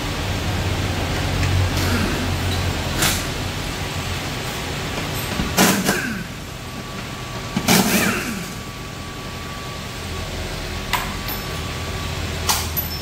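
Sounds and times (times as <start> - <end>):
pneumatic impact wrench bursts: 5.6 - 6.4, 7.7 - 8.7.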